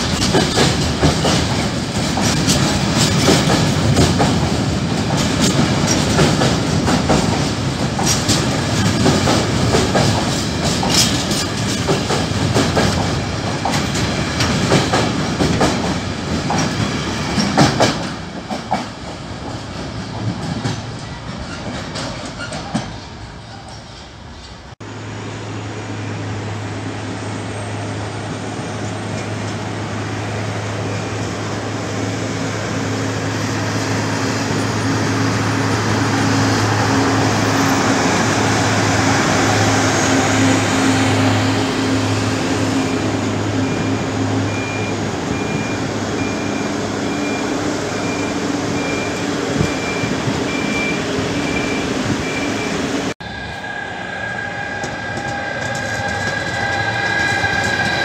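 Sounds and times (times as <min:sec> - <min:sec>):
electric locomotive whine: 0:23.1 - 0:58.0
diesel engines running: 0:24.8 - 0:58.0
repeating beep: 0:43.7 - 0:52.8.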